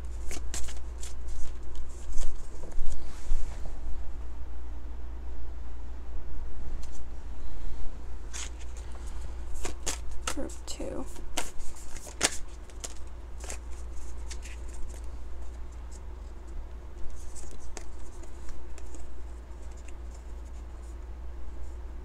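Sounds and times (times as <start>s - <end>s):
card deck shuffling snaps: 9.6s - 10.4s, 11.2s - 15.1s.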